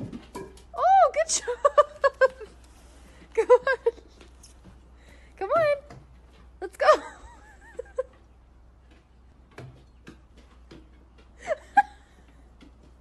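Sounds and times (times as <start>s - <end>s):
claws and stick ticking on steps: 7.5s - 13.0s.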